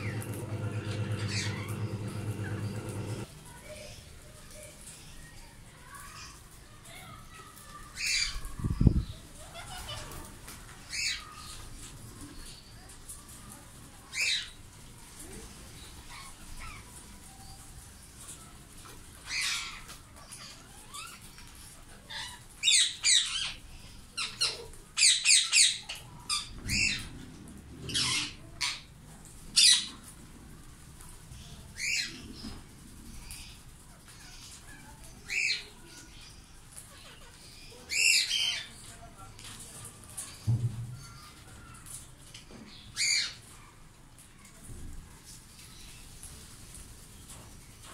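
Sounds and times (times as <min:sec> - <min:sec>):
parakeets squawking: 0:00.0 - 0:03.3.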